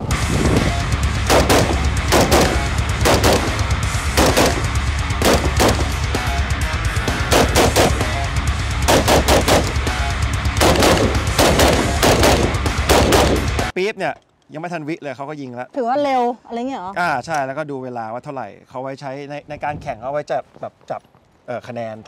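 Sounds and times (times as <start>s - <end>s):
rifle shots: 1.2s - 6.0s, 7.2s - 8.2s, 8.8s - 9.9s, 10.6s - 13.7s.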